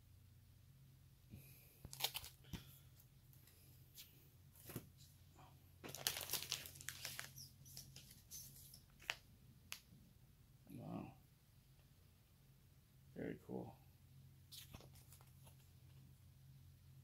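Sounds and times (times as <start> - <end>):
plastic and paper crinkling: 1.8 - 2.7, 5.8 - 9.2, 14.5 - 15.7.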